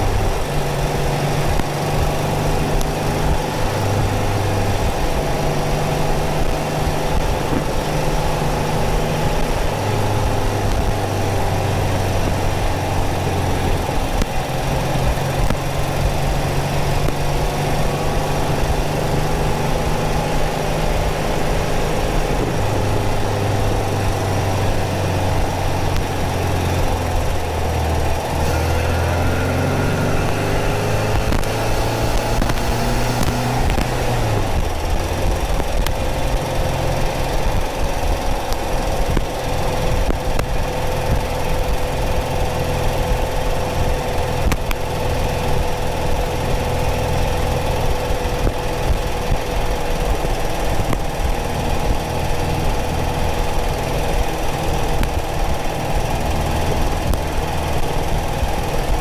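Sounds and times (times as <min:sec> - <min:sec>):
car engine running: 0:00.0 - 0:59.0
road noise: 0:00.0 - 0:59.0
wind noise: 0:00.0 - 0:59.0
static: 0:24.0 - 0:59.0.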